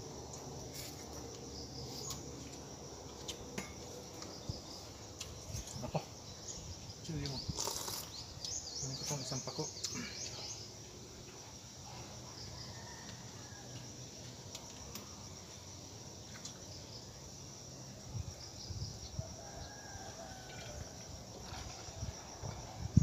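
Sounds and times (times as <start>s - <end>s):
high-pitched insect buzzing: 3.2s - 10.6s
faint rooster crowing: 12.0s - 14.1s, 19.1s - 21.3s.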